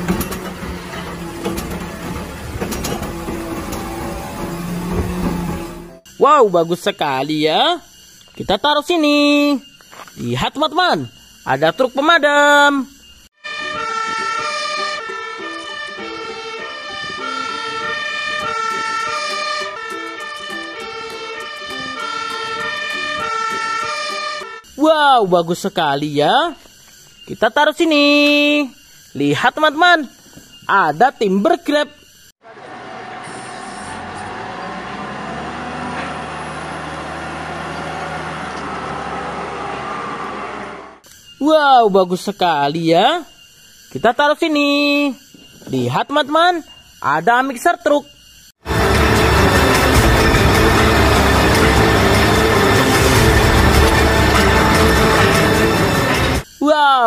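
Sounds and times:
diesel engine running: 0:00.0 - 0:06.1, 0:32.4 - 0:41.0, 0:48.6 - 0:56.4
fire engine two-tone siren: 0:10.8 - 0:24.9, 0:32.4 - 0:41.0, 0:48.6 - 0:56.5.

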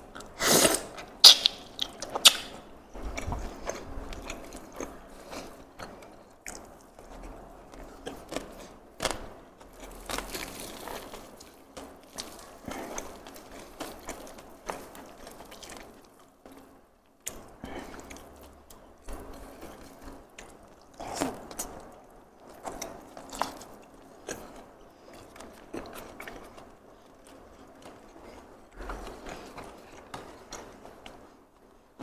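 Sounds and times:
wet chewing and crunching: 0:00.1 - 0:31.4.

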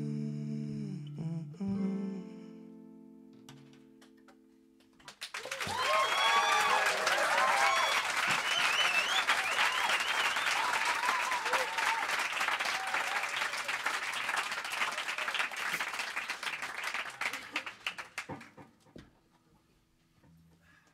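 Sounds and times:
audience applauding: 0:05.0 - 0:18.5
whoops and cheers: 0:05.4 - 0:13.8.

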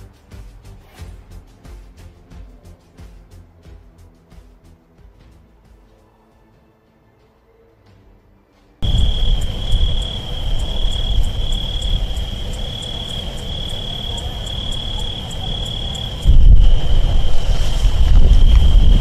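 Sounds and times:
crickets chirping: 0:08.8 - 0:19.0
deep rumble of lava fountain: 0:08.8 - 0:19.0.

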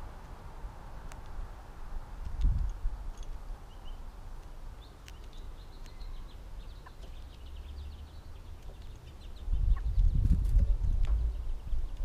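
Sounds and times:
songbird chirping: 0:00.0 - 0:12.0
faint clicks: 0:04.4 - 0:06.0
low steady rumble: 0:09.2 - 0:12.0.

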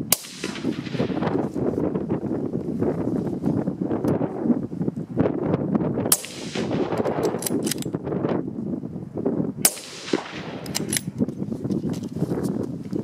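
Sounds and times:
rifle shots: 0:00.0 - 0:01.5, 0:06.1 - 0:07.8, 0:09.6 - 0:11.2
wind noise on microphone: 0:00.0 - 0:13.0.

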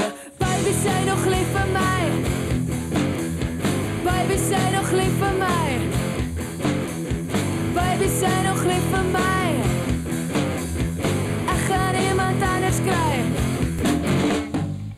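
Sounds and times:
rock song with sung vocal: 0:00.0 - 0:14.4
driving drum kit: 0:00.0 - 0:14.9
electric guitar: 0:00.0 - 0:14.9.

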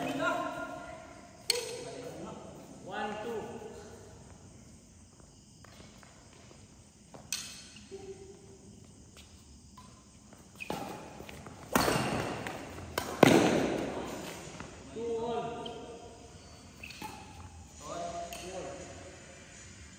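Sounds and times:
rackets hitting shuttlecock: 0:01.4 - 0:01.9, 0:09.8 - 0:14.7.

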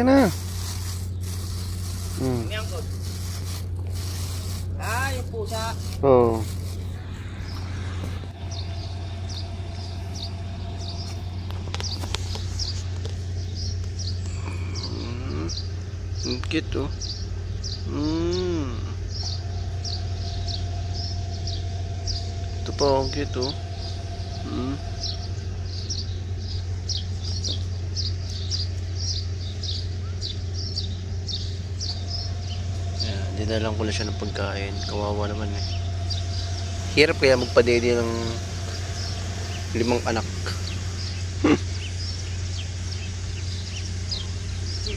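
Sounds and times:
low hum: 0:00.0 - 0:44.9
small bird chirping: 0:00.0 - 0:44.9
short rising cry: 0:06.5 - 0:11.5, 0:17.8 - 0:27.2.

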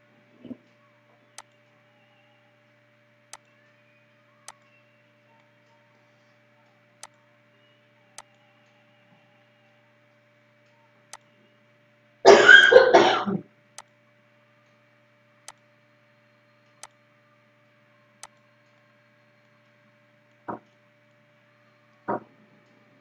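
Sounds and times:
faint steady hum: 0:00.0 - 0:23.0
person coughing: 0:12.3 - 0:13.4.

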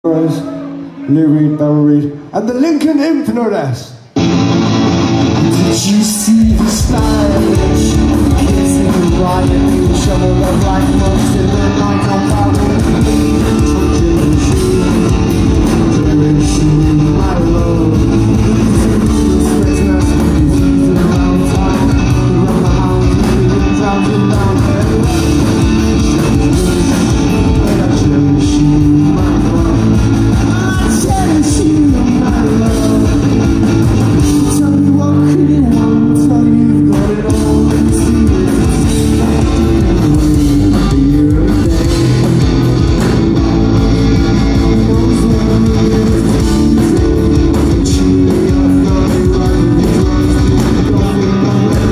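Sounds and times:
live rock band playing: 0:00.1 - 0:02.4, 0:04.0 - 0:51.9.

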